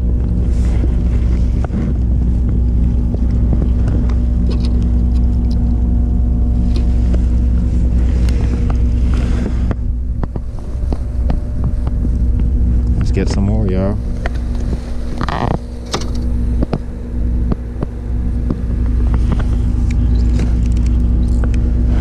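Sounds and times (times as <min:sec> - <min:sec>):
gear knocks and clicks: 0:00.0 - 0:06.0, 0:14.1 - 0:22.0
electric motor humming: 0:00.0 - 0:22.0.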